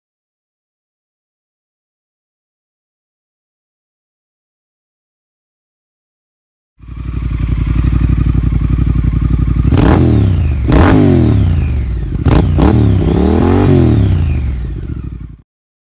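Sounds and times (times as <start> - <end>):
motorcycle engine idling and revving: 6.8 - 15.4.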